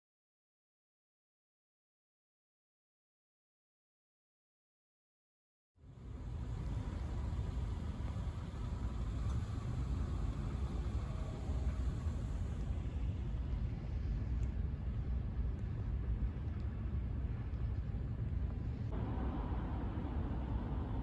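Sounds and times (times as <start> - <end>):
street ambience rumble: 5.8 - 21.0.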